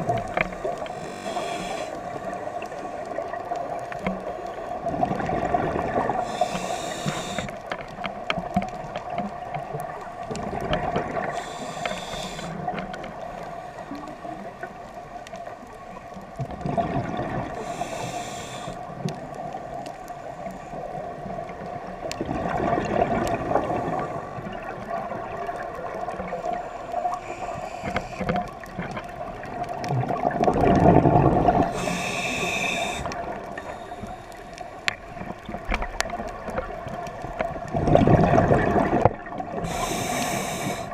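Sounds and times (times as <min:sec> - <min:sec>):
regulator breathing hiss and bubbles: 0:00.0 - 0:08.0, 0:10.4 - 0:14.8, 0:16.8 - 0:21.1, 0:22.2 - 0:28.7, 0:30.1 - 0:35.4, 0:37.8 - 0:40.9.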